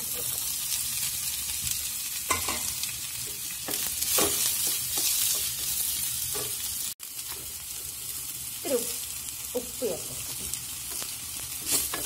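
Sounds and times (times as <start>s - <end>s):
onions sizzling in hot oil: 0.0s - 12.0s
wooden spatula scraping pan: 10.4s - 12.0s.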